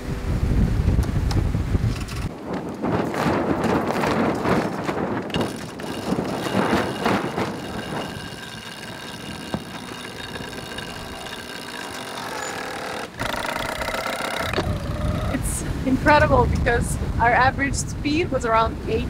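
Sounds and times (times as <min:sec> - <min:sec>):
rushing sea: 0:00.0 - 0:19.0
wind on microphone: 0:00.0 - 0:19.0
powered winch whining: 0:04.6 - 0:15.4.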